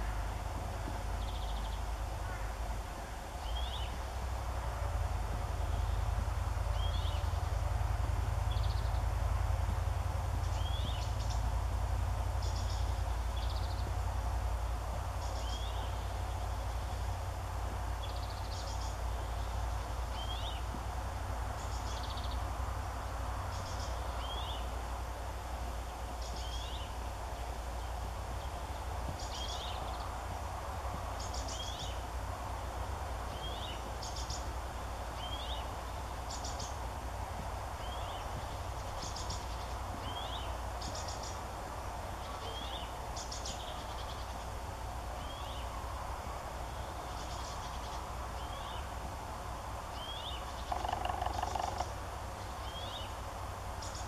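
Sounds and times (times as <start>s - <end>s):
small birds calling: 0.0s - 4.1s, 5.7s - 7.7s, 8.5s - 9.1s, 10.4s - 11.5s, 12.3s - 14.0s, 15.1s - 17.0s, 18.0s - 20.8s, 21.5s - 22.5s, 23.4s - 24.8s, 26.2s - 30.2s, 31.1s - 32.1s, 33.3s - 34.5s, 35.1s - 36.9s, 37.8s - 44.6s, 45.2s - 45.8s, 46.7s - 49.0s, 49.9s - 53.2s, 53.8s - 54.0s
low background rumble: 0.0s - 54.0s.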